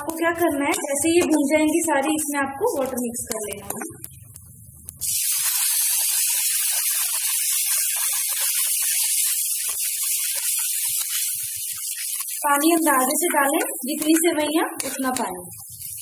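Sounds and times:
water sizzling in hot pan: 5.0 - 16.0.

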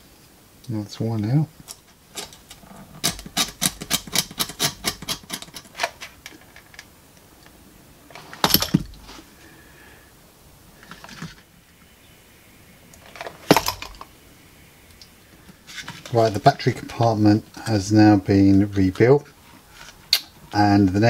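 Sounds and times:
clatter of small parts and tools: 1.7 - 6.9, 8.2 - 9.0, 13.0 - 14.1.

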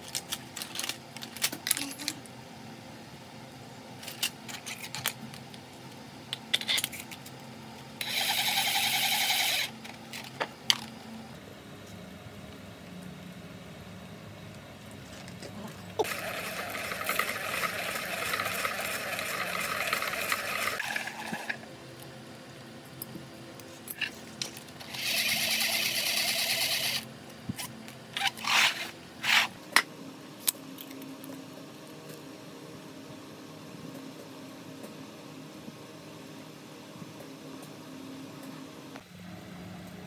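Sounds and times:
hand-cranked coil winder whirring: 8.0 - 9.7, 16.0 - 21.6, 24.8 - 27.0.

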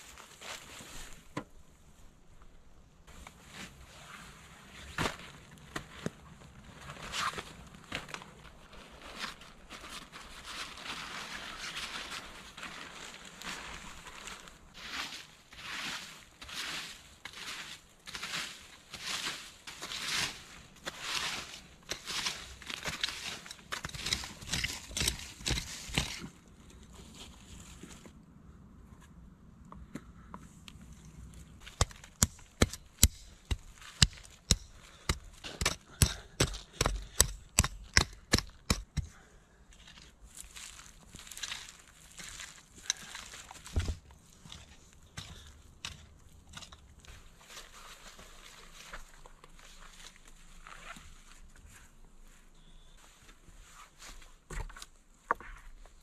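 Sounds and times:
dry leaves rustling: 8.4 - 28.1, 40.3 - 43.7.

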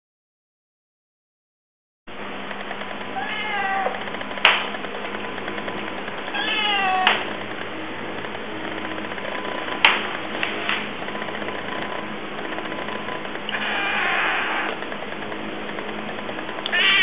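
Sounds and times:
young cat meowing: 3.1 - 4.0, 6.3 - 7.2, 13.5 - 14.8, 16.7 - 17.0.

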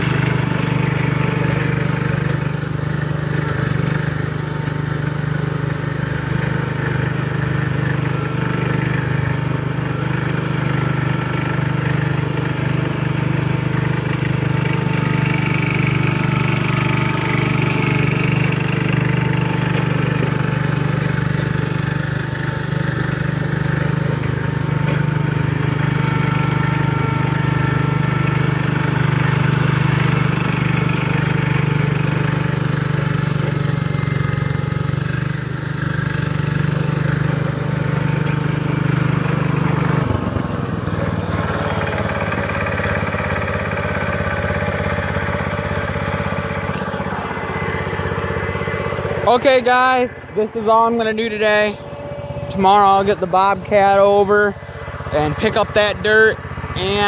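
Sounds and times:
garden tractor engine running: 0.0 - 57.0.

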